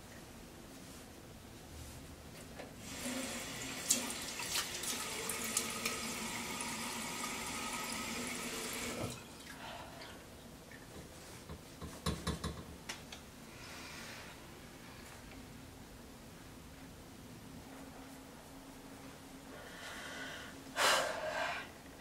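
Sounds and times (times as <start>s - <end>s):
tap running into basin: 3.2s - 9.2s.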